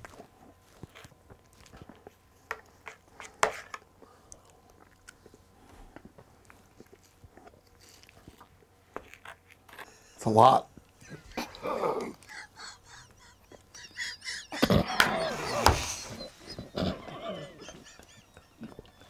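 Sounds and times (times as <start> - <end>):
quiet chewing: 0.0 - 10.1, 16.2 - 19.0.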